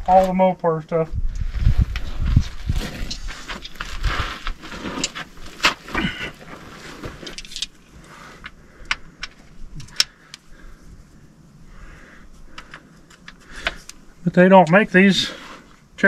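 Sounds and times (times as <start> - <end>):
scuffing and rustling on dirt: 1.4 - 7.5.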